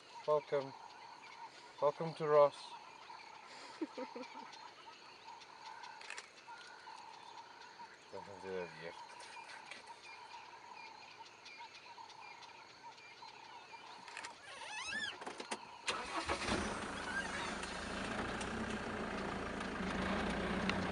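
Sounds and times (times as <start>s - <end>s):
faint chirps: 0.0s - 15.8s
vehicle engine starting and running: 15.9s - 20.9s.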